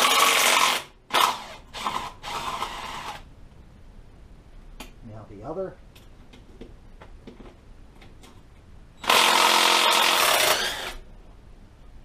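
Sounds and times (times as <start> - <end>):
power tool running: 9.0 - 11.0.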